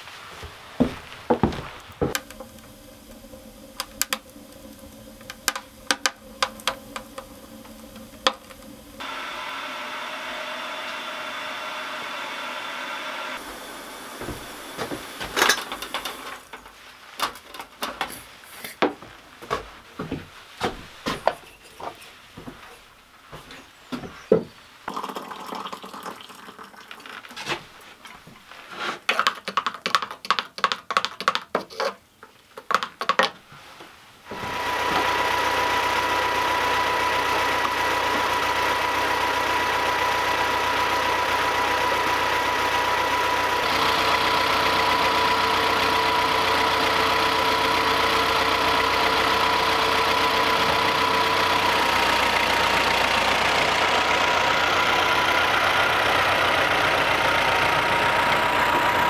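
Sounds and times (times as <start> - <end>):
gas stove hissing: 0.0 - 21.6, 34.2 - 59.0
kettle and mug knocking: 5.2 - 8.6.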